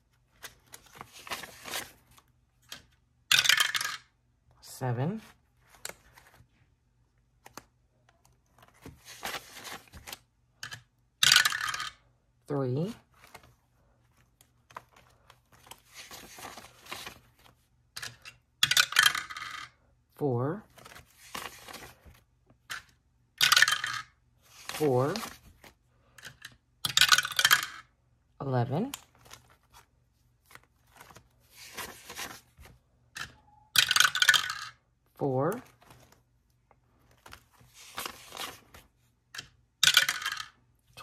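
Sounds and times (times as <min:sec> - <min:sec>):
paper bills rustling: 0:00.0 - 0:02.9, 0:05.1 - 0:06.5, 0:07.4 - 0:10.2, 0:13.0 - 0:18.2, 0:20.6 - 0:22.2, 0:24.5 - 0:25.8, 0:29.0 - 0:32.8, 0:35.5 - 0:36.3, 0:36.9 - 0:39.0
die clattering through dice tower: 0:03.3 - 0:04.1, 0:10.6 - 0:12.0, 0:18.0 - 0:19.7, 0:22.7 - 0:24.1, 0:26.2 - 0:27.9, 0:33.2 - 0:34.8, 0:39.4 - 0:40.6
plastic die clattering: 0:22.7 - 0:24.1, 0:26.2 - 0:27.8, 0:39.3 - 0:40.5.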